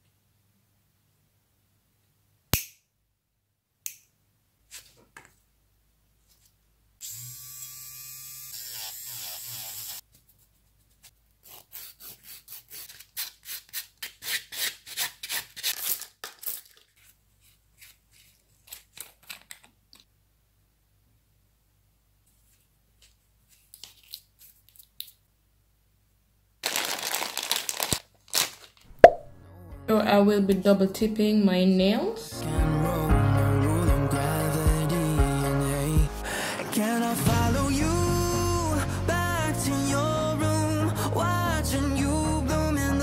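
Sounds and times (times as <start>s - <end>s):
nail file rasping on fingernails: 8.6s - 10.0s, 10.7s - 15.9s.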